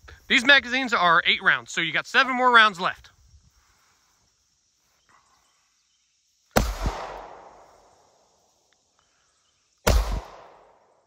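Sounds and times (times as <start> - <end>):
pistol shot with echo: 6.6 - 7.6, 9.9 - 10.8.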